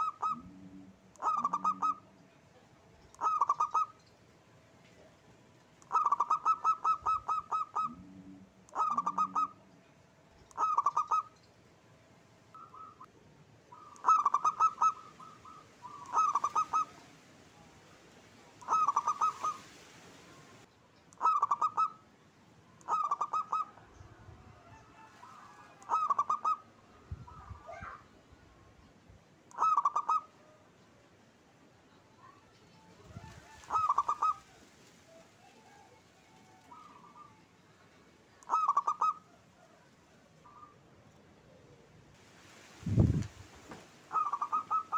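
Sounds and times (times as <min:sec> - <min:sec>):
dove cooing: 0:00.0 - 0:02.2, 0:03.2 - 0:04.0, 0:05.8 - 0:09.7, 0:10.5 - 0:11.3, 0:12.6 - 0:13.1, 0:13.7 - 0:17.2, 0:18.6 - 0:19.7, 0:21.2 - 0:22.0, 0:22.8 - 0:28.0, 0:29.5 - 0:30.6, 0:33.0 - 0:37.5, 0:38.4 - 0:40.8, 0:44.1 - 0:44.9.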